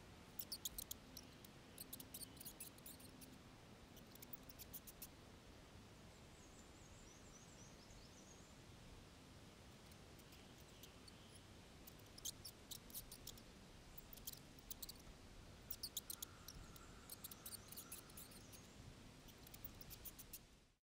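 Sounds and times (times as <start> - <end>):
faint outdoor background hiss: 0.0 - 20.8
mice squeaking: 0.4 - 3.3, 4.0 - 5.1, 10.2 - 13.4, 14.0 - 15.1, 15.7 - 18.6, 19.3 - 20.4.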